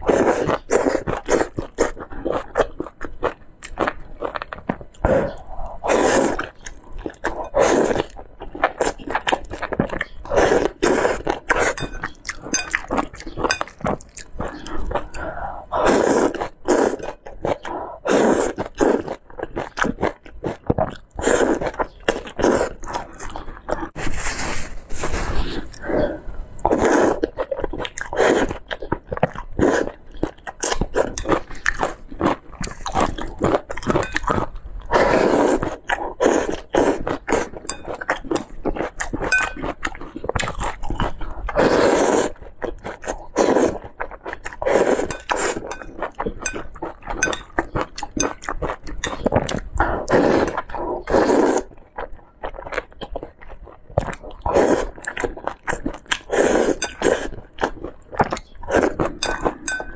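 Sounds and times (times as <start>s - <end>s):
noodle slurping and chewing: 0.0s - 59.9s
chopsticks scraping ceramic bowl: 11.0s - 13.8s, 33.8s - 34.4s, 37.4s - 38.6s, 39.2s - 39.8s, 44.7s - 49.4s, 56.4s - 57.5s, 58.3s - 59.9s.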